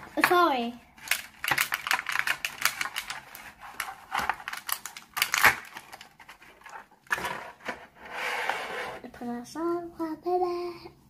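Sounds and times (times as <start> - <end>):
plastic capsule clicking and crackling: 1.0 - 6.8.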